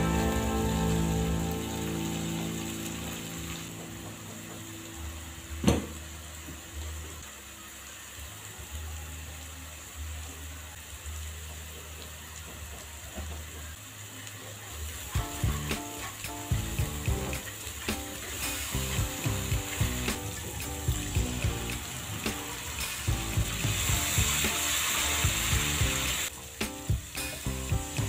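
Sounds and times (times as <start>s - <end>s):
paste sizzling in a wok: 0.0s - 5.4s, 13.9s - 28.0s.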